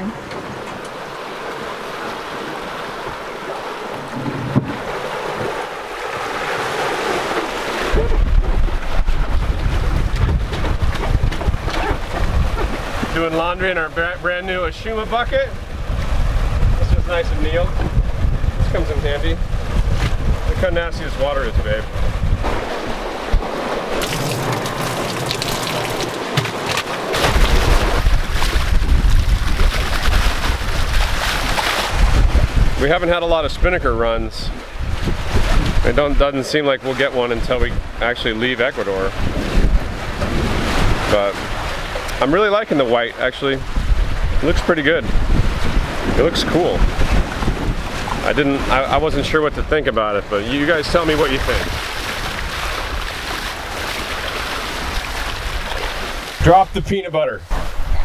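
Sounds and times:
wind buffeting microphone: 0.0s - 36.4s, 37.0s - 58.0s
water rushing past hulls: 0.0s - 58.0s
water splashing from bucket: 22.5s - 32.2s.

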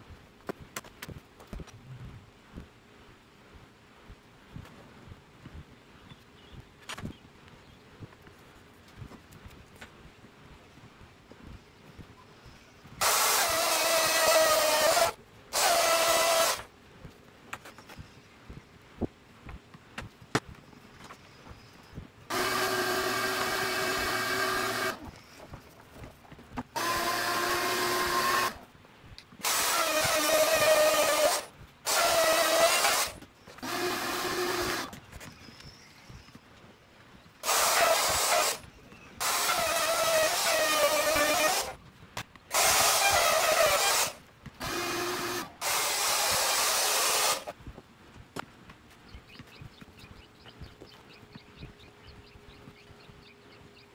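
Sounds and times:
power tool cutting plywood: 13.0s - 16.7s, 22.3s - 25.1s, 26.8s - 28.6s, 29.4s - 35.0s, 37.4s - 41.8s, 42.5s - 47.6s.

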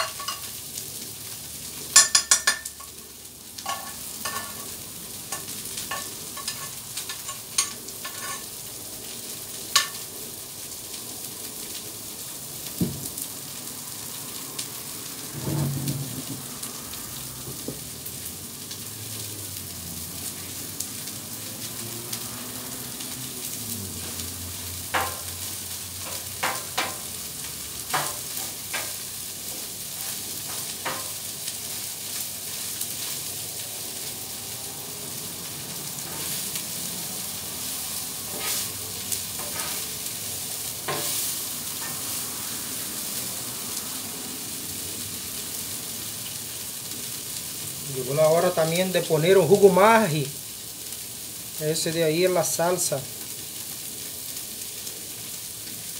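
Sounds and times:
food sizzling on griddle: 0.0s - 55.9s
utensils clinking and scraping metal: 5.4s - 8.5s.

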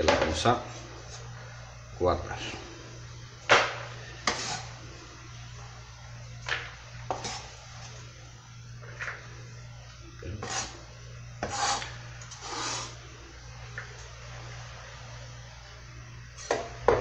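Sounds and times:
knife scraping cutting board: 4.2s - 4.7s, 7.1s - 7.5s, 10.3s - 10.8s, 11.4s - 13.0s.

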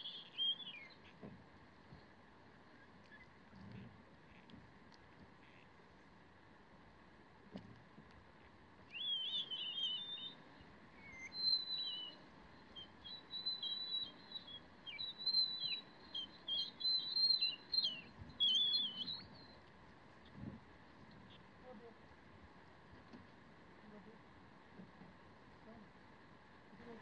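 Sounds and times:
songbird warbling: 0.0s - 1.2s, 8.9s - 19.7s.

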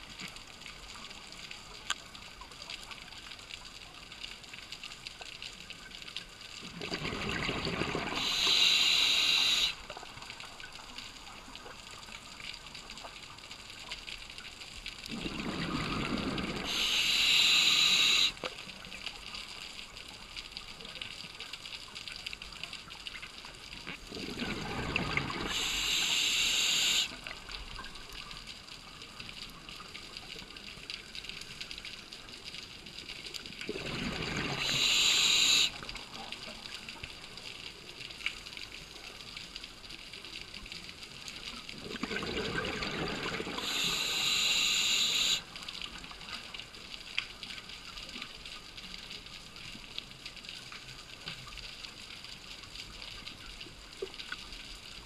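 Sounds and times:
rush of air and bubbles: 6.6s - 10.0s, 15.1s - 18.4s, 24.0s - 27.2s, 33.6s - 36.1s, 41.7s - 45.6s
diver breathing through regulator: 8.1s - 9.8s, 16.0s - 18.4s, 25.4s - 27.2s, 34.5s - 35.8s, 43.6s - 45.5s.

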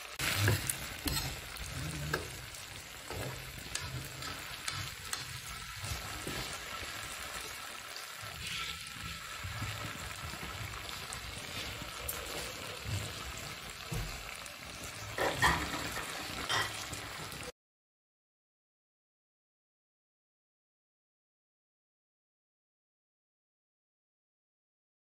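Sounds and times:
meat sizzling on a griddle: 0.0s - 17.5s
metal spatula scraping: 0.1s - 13.5s, 15.1s - 17.1s.

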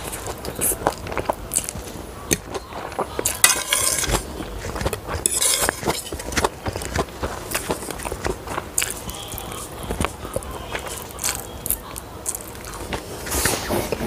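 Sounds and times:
fork clinking on ceramic plates: 2.3s - 11.5s.

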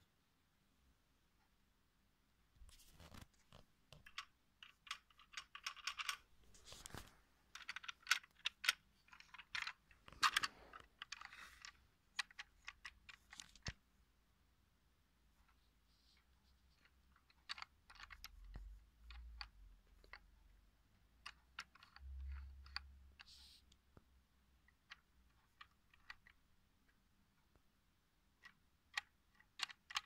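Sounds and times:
plastic bricks clicking: 3.9s - 13.8s, 16.7s - 23.3s, 24.6s - 27.0s, 28.2s - 30.0s.

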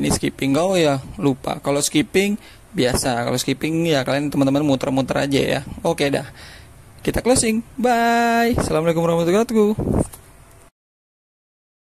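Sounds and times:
man's voice: 0.0s - 6.4s, 7.0s - 10.0s.

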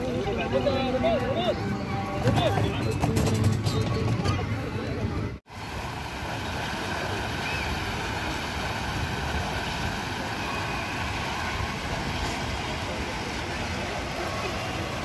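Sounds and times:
fountain water splashing into pool: 5.5s - 15.0s.

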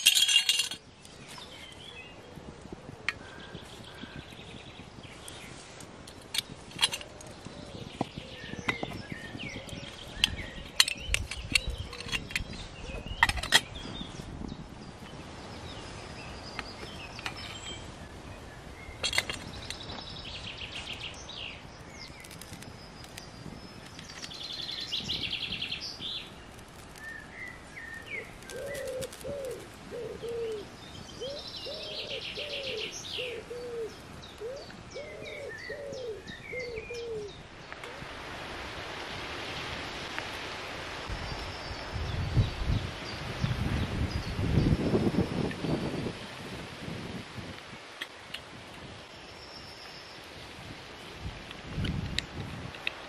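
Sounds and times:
woodland birds singing: 0.0s - 37.9s, 41.1s - 46.2s, 48.9s - 50.6s
steady hiss: 15.2s - 53.0s
dove cooing: 28.2s - 37.3s.

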